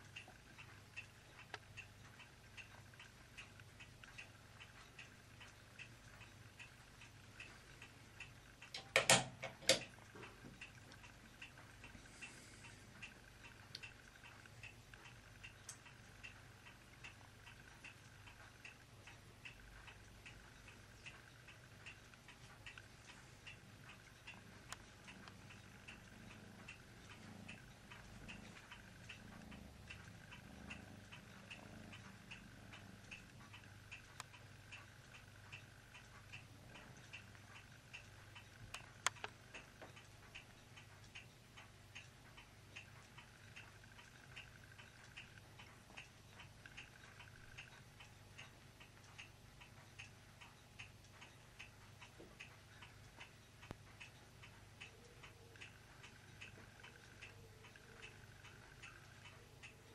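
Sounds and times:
steady ticking: 0.0 - 59.9.

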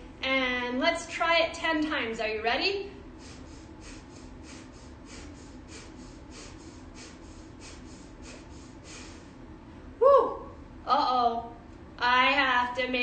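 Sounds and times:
woman breathing rapidly through nose: 3.1 - 9.4.

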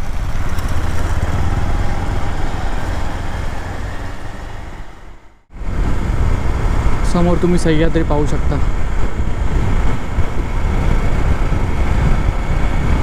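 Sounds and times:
motorcycle engine rumble: 0.0 - 7.3
road and wind noise: 0.0 - 13.0.

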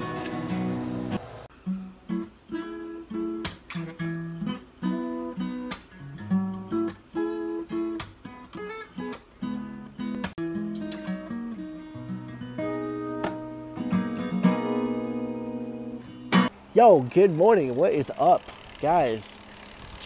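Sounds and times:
acoustic guitar strummed and picked: 0.0 - 16.6.

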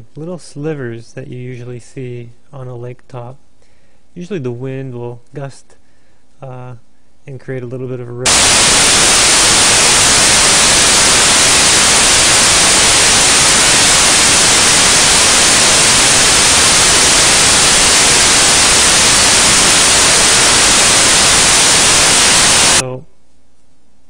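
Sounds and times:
static hiss: 8.2 - 22.9.

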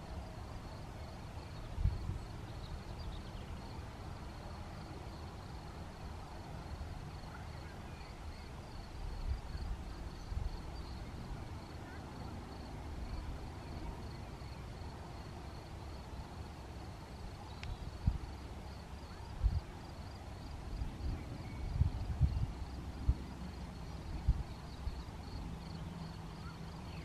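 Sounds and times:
cricket chirping: 0.0 - 27.0
wind buffeting microphone: 17.9 - 18.4, 20.7 - 25.0.

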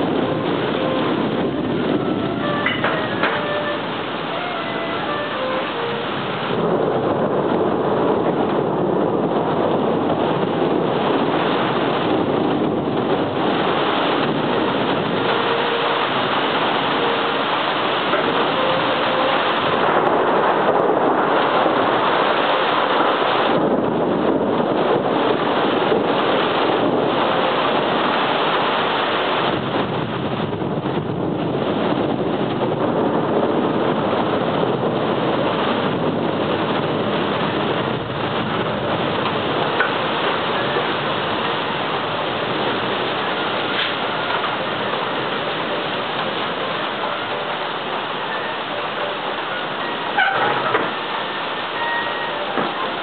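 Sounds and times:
heavy rain hiss: 0.0 - 53.0.

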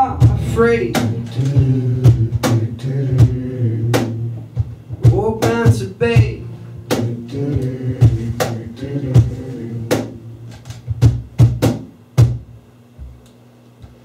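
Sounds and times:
sharp percussive hits: 0.0 - 3.4, 6.8 - 12.4
wordless vocals into microphone: 0.0 - 10.6
bass guitar low notes: 0.0 - 13.2.

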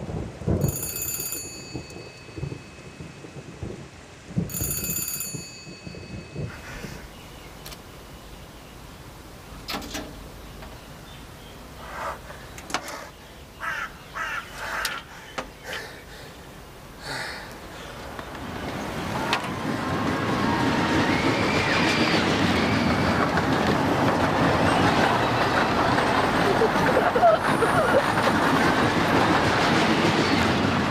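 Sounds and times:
loud vehicle-like noise: 17.9 - 30.9.

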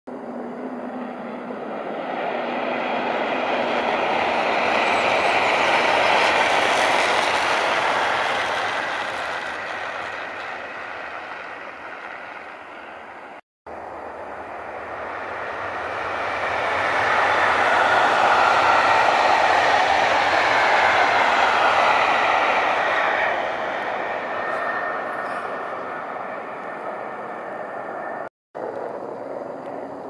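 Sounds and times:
passenger train passing: 0.1 - 30.0.

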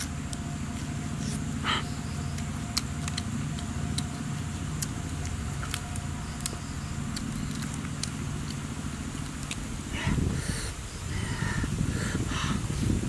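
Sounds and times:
low motor hum: 0.0 - 13.0
fingers tearing grilled fish: 2.3 - 9.7.

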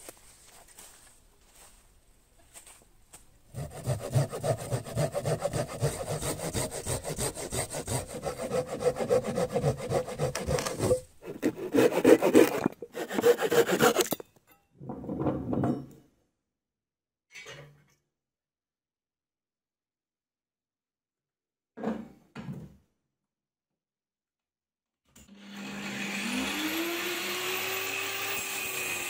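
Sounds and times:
saw cutting through log: 3.5 - 14.2, 25.4 - 29.0.

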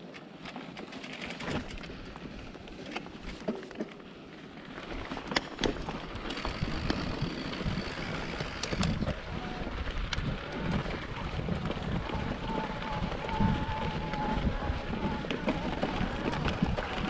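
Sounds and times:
wind buffeting microphone: 4.9 - 17.0.

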